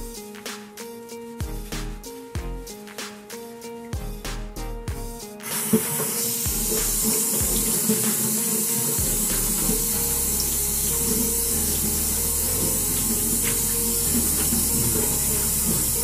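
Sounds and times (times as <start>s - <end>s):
faucet running into sink: 5.4s - 16.0s.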